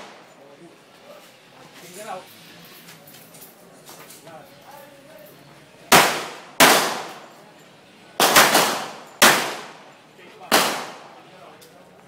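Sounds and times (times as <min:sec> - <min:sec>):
handgun shots: 0:05.9 - 0:07.3, 0:08.2 - 0:09.9, 0:10.5 - 0:11.1.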